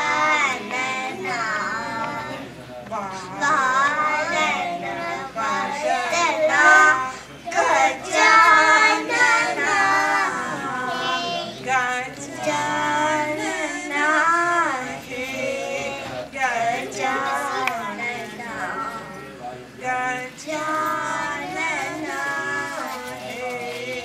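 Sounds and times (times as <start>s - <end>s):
girls singing into a microphone: 0.0s - 24.0s.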